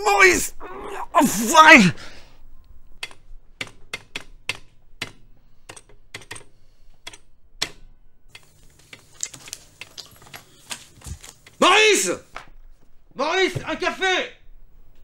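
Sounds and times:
paper rustling: 0:08.5 - 0:13.0.

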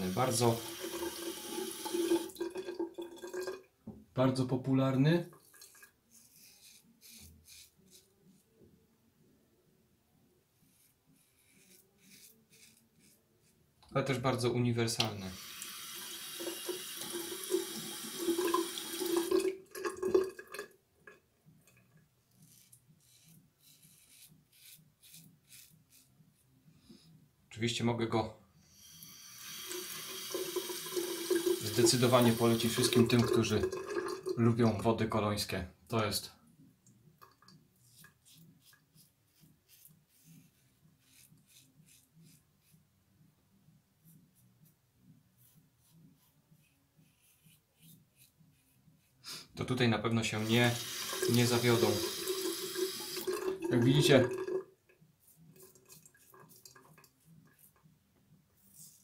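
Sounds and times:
razor scraping through lather: 0:06.1 - 0:08.4, 0:10.6 - 0:13.6, 0:22.3 - 0:26.2, 0:37.8 - 0:42.8, 0:50.4 - 0:53.2.

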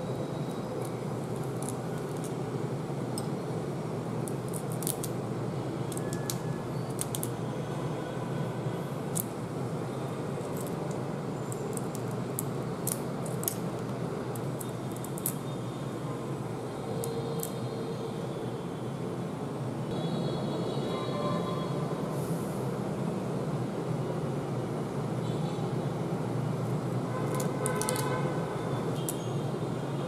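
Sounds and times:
steady background hum: 0:00.0 - 0:30.0
shrimp shell crackling: 0:00.7 - 0:02.4, 0:04.2 - 0:05.2, 0:05.9 - 0:07.4, 0:10.4 - 0:15.4, 0:27.2 - 0:28.1.

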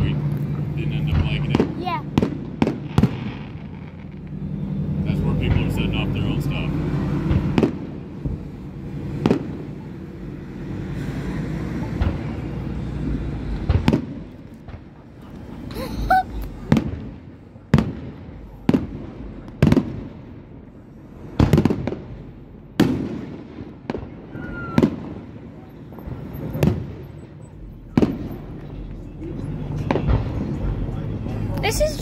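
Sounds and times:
rising firework whistle: 0:24.2 - 0:25.2.

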